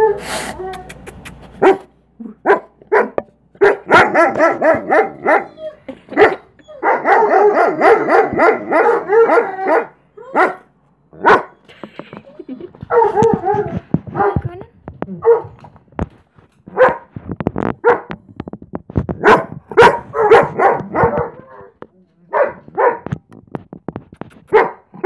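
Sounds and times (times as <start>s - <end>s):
dog barking and yipping: 1.4s - 11.7s, 12.8s - 14.4s, 15.2s - 15.6s, 16.7s - 17.1s, 17.8s - 18.2s, 19.2s - 23.1s, 24.5s - 25.0s
dog howling: 6.6s - 10.6s.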